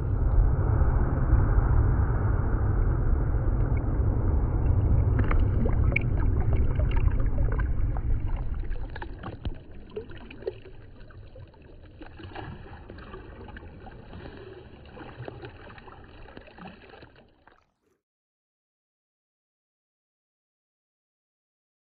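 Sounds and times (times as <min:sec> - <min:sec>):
sea water sloshing: 0:04.6 - 0:17.8
small splashes and drips: 0:05.1 - 0:17.8.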